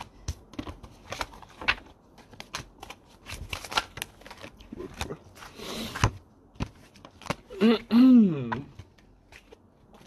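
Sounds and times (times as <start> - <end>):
cards snapping and sliding: 0.3 - 5.0.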